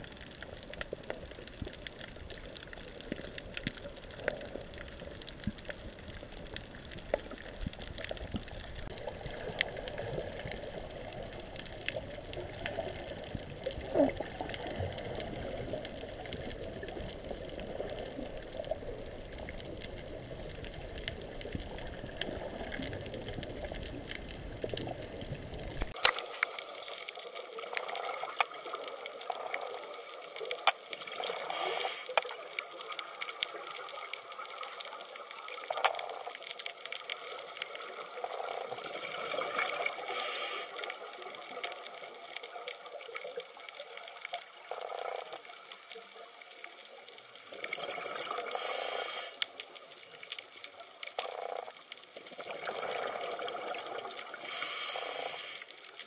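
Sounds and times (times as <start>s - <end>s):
underwater rushing water: 0.0s - 56.0s.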